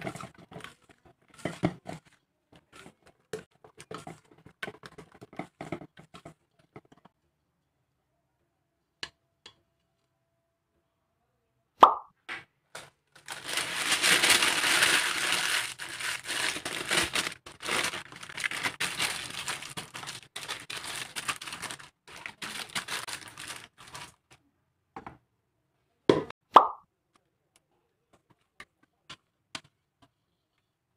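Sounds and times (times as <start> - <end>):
baking paper crinkling: 0.0 - 5.7, 12.8 - 24.4.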